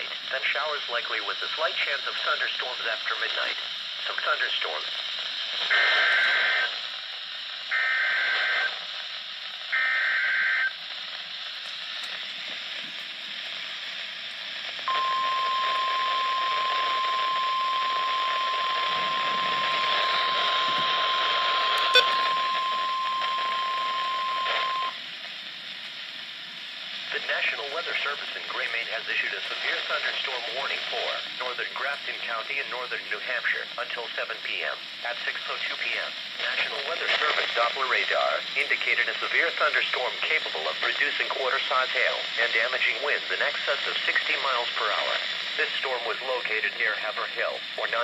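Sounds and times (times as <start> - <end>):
static hiss: 0.0 - 48.0
warbling data bursts: 14.9 - 24.9
long warning alarm tone: 14.9 - 25.0.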